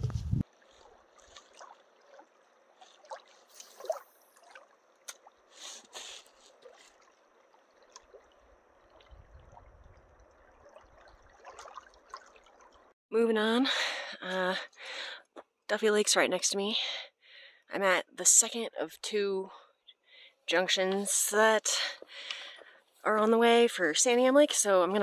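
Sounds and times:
ripples lapping on pebbly shore: 0:00.4 - 0:12.9
small water splashes: 0:00.4 - 0:13.0.

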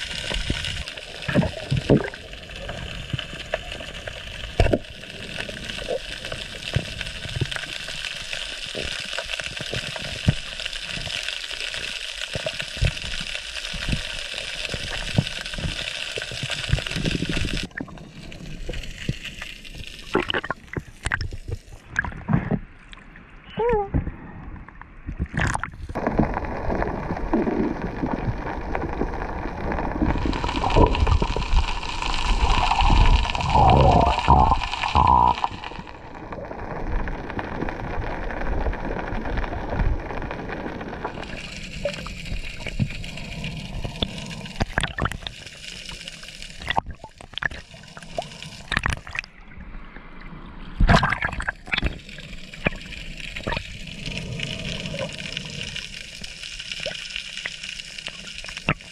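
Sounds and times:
water sloshing and gurgling: 0:00.0 - 0:58.9
muffled underwater sound: 0:20.1 - 0:56.2.

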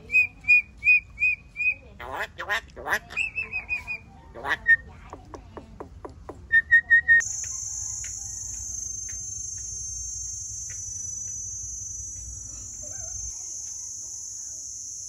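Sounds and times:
faint chirps: 0:06.5 - 0:15.0
myna ringing calls: 0:06.5 - 0:15.0
high-pitched insect drone: 0:07.2 - 0:15.0.

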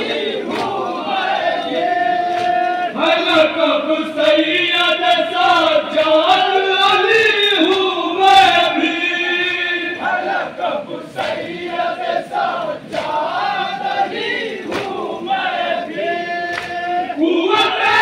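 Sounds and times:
amplified voice reciting: 0:00.0 - 0:18.0
men chanting together: 0:00.0 - 0:18.0
hands slapping chests: 0:02.3 - 0:02.8, 0:14.7 - 0:15.0, 0:16.5 - 0:16.8.

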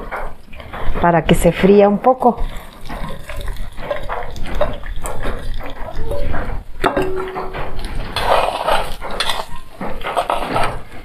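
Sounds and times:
plastic spoon scraping pan: 0:02.4 - 0:11.0
plate clinking against pan: 0:06.8 - 0:07.8.

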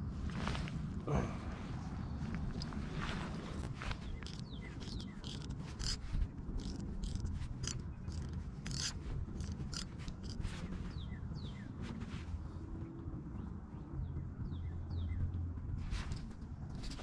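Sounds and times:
low steady rumble: 0:00.0 - 0:17.0
sharp mechanical clicks: 0:04.1 - 0:10.4.

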